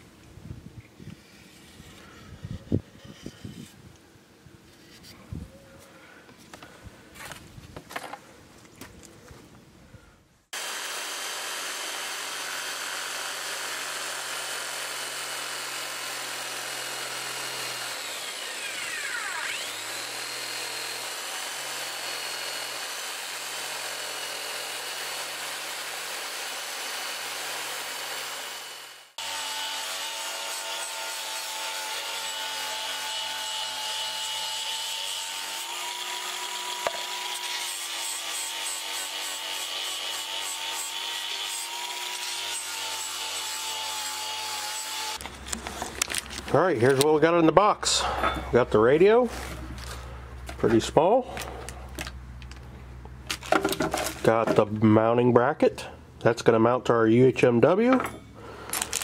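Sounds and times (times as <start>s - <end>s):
angle grinder sanding: 10.6s - 45.2s
jigsaw cutting plastic: 10.6s - 45.2s, 58.7s - 59.0s.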